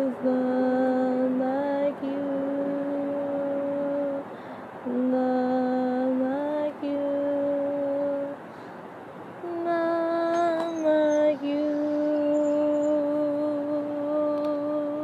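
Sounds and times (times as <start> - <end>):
person humming slow melody: 9.4 - 15.0.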